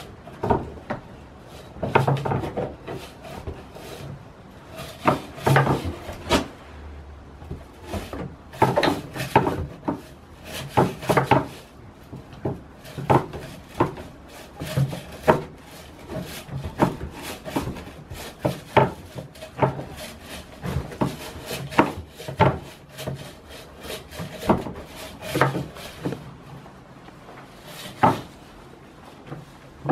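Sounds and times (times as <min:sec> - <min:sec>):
goat gnawing and scraping wood: 0:00.0 - 0:06.8, 0:07.4 - 0:29.9.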